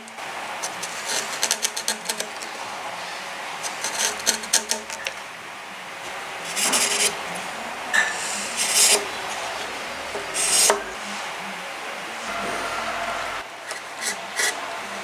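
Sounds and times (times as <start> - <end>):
chisel scraping wood: 0.8 - 2.3, 3.7 - 4.9.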